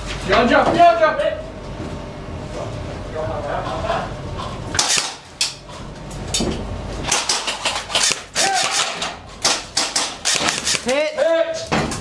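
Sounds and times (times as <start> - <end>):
sharp clacks and knocks: 7.1 - 10.9.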